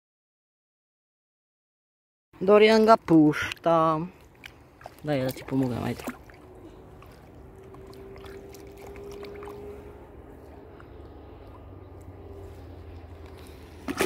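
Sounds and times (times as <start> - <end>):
faint water movement: 2.8 - 14.0.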